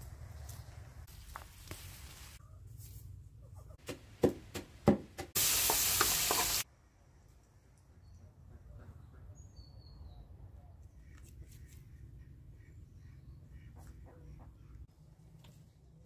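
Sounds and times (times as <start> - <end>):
food sizzling: 5.4 - 6.7.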